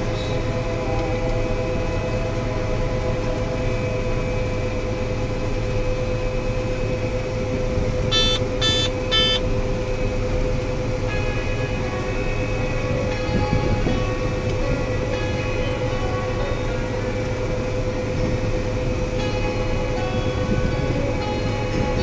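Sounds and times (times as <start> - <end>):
combine harvester machinery drone: 0.0 - 22.0
short electronic beeps: 8.1 - 9.4.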